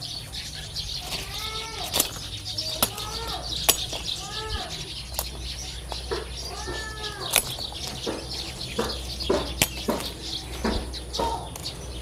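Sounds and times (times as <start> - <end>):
birds chirping faintly: 0.0 - 12.0
plants rustling and brushing: 0.0 - 12.0
sharp clicks and snaps: 7.2 - 8.2.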